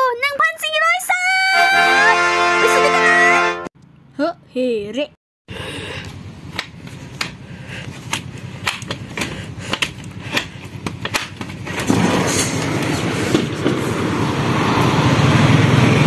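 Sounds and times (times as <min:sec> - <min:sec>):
outdoor noise rushing: 0:05.5 - 0:16.0.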